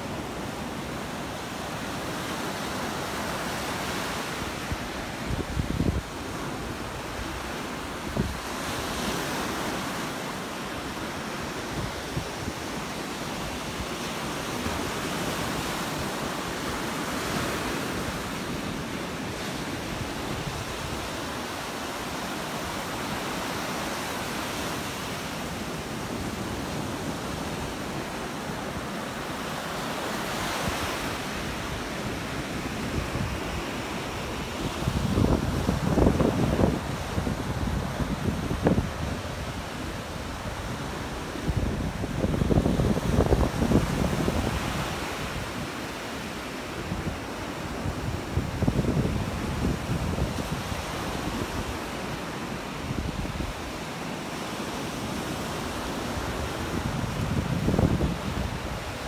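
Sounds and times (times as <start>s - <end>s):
surf waves washing up beach: 0.0s - 59.0s
wind buffeting microphone: 30.6s - 45.8s, 46.8s - 51.9s, 56.1s - 59.0s.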